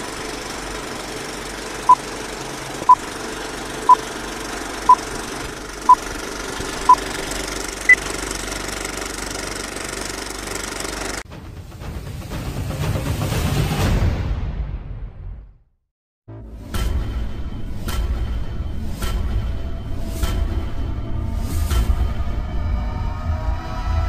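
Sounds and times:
film projector clatter: 0:00.0 - 0:11.2.

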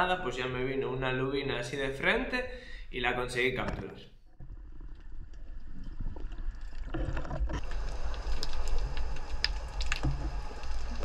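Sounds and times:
underwater rumble and wash: 0:04.3 - 0:11.0.

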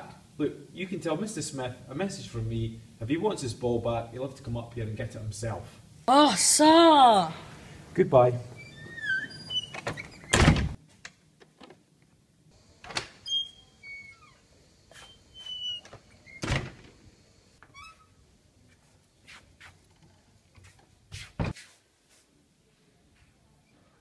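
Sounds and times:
door slamming shut: 0:09.8 - 0:10.8, 0:16.4 - 0:17.0.

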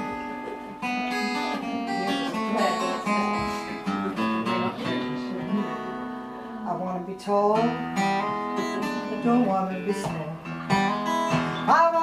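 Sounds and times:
ukulele strumming: 0:00.0 - 0:06.7
acoustic guitar strumming: 0:00.0 - 0:12.0.

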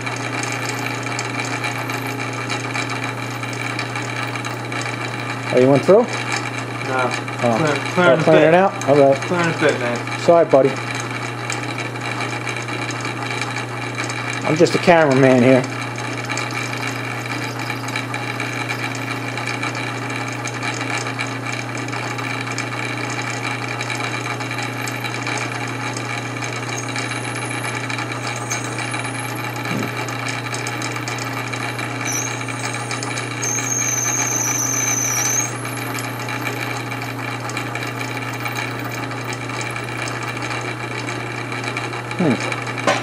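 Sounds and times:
drill bit squealing: 0:00.0 - 0:10.2, 0:10.8 - 0:42.7
metal lathe running: 0:00.0 - 0:43.0.

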